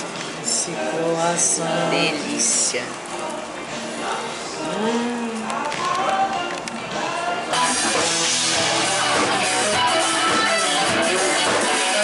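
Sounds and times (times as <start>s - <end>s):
electric guitar: 4.7s - 12.0s
drums: 5.6s - 12.0s.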